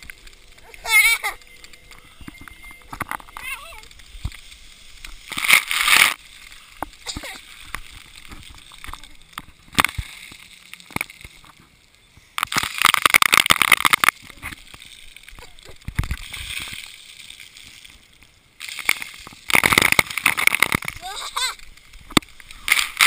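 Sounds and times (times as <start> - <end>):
water spray splashing: 3.4 - 11.5.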